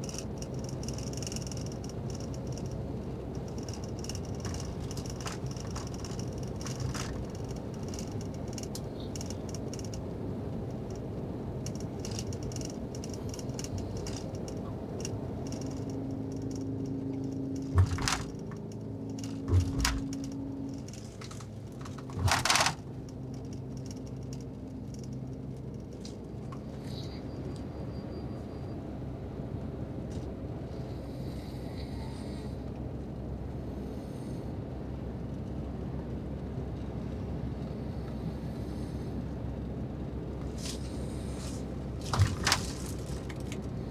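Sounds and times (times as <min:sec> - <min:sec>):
small clicks and rattles: 0:00.0 - 0:26.8, 0:40.4 - 0:43.9
bus cabin rumble: 0:00.0 - 0:43.9.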